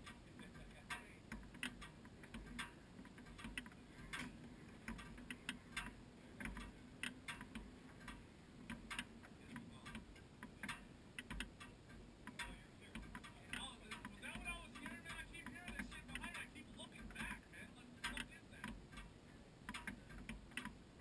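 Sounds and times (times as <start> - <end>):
faint ticking and clicking: 0.0 - 21.0.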